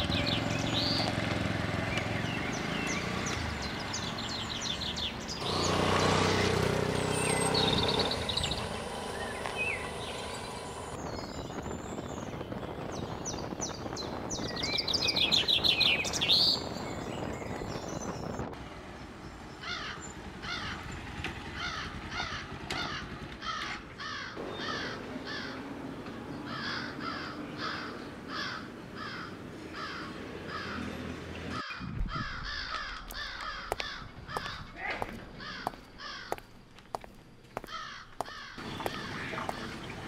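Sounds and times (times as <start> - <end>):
crows cawing: 19.6 - 20.9, 21.5 - 25.7, 26.4 - 30.9, 31.5 - 36.5, 37.6 - 39.9.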